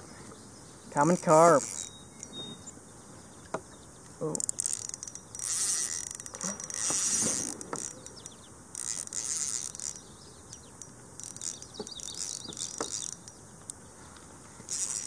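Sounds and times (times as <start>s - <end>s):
fishing reel whirring: 1.0s - 2.6s, 4.2s - 13.8s, 14.6s - 15.0s.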